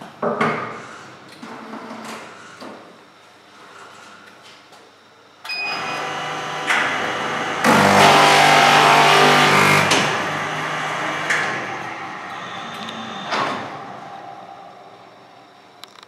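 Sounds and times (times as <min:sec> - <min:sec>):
binding machine running: 0:05.7 - 0:16.0
loud grinding of spine milling: 0:05.8 - 0:11.9.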